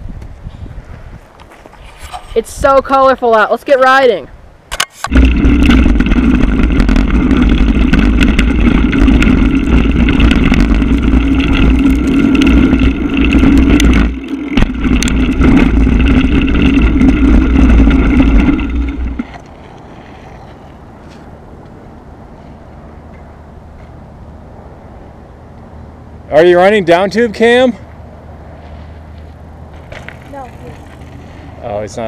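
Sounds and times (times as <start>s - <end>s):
bike rattles and knocks: 4.7s - 21.3s, 29.7s - 31.4s
mountain bike ride rushing noise: 4.9s - 22.8s, 28.4s - 32.0s.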